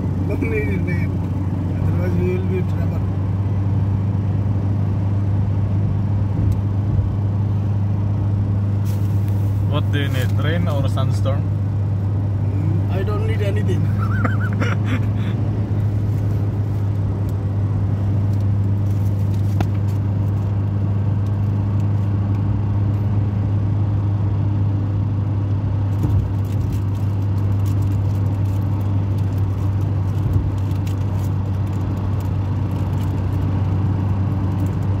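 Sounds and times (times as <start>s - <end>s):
car engine and road noise: 0.0s - 35.0s.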